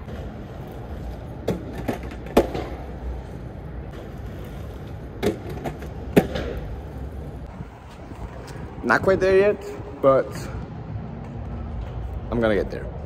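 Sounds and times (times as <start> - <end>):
skate impact clacks: 0.0 - 6.9
inline skates rolling on concrete: 0.0 - 13.0.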